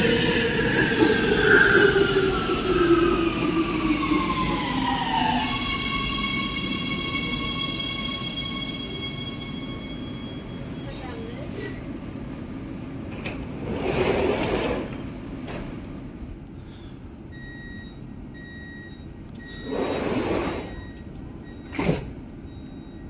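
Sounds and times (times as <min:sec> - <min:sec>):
sliding doors shutting: 0:13.1 - 0:15.8, 0:19.4 - 0:21.0, 0:21.6 - 0:22.2.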